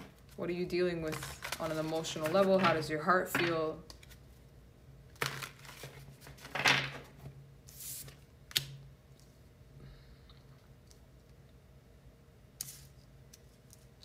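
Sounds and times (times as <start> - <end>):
cards shuffling: 1.0 - 4.2, 5.2 - 8.7.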